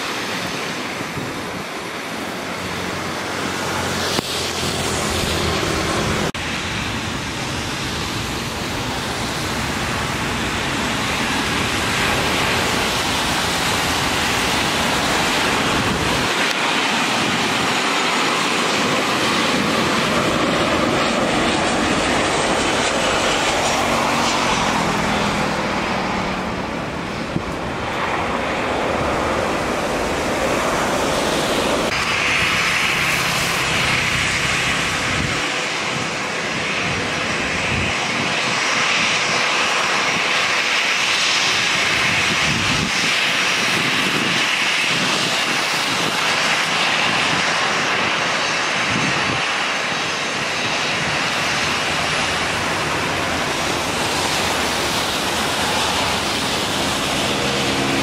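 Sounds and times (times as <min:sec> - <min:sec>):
heavy rain hissing: 0:00.0 - 0:35.2, 0:50.7 - 0:58.0
jet engines rushing: 0:00.0 - 0:58.0
turbofan whine: 0:00.6 - 0:58.0.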